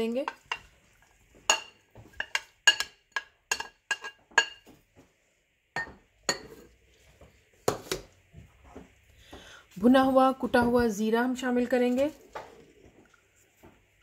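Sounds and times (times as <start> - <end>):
spoon clinking against plate: 1.5 - 4.7, 5.8 - 6.7.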